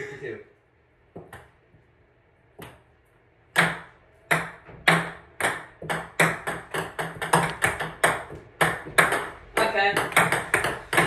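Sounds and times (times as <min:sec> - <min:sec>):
ping-pong ball bouncing: 0:03.5 - 0:11.0.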